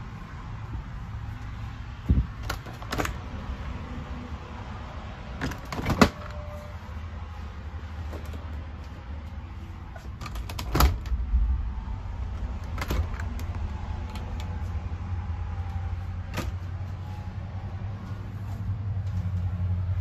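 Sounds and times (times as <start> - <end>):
steady low hum: 10.7 - 20.0.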